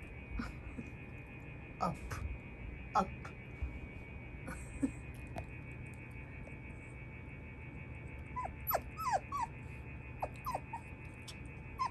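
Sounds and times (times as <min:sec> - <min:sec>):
puppy whimpering: 0:08.4 - 0:09.6, 0:10.2 - 0:11.9.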